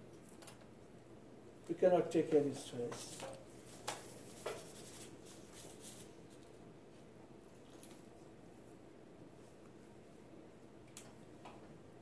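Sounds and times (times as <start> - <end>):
scratchy rustling of handling: 2.2 - 9.8.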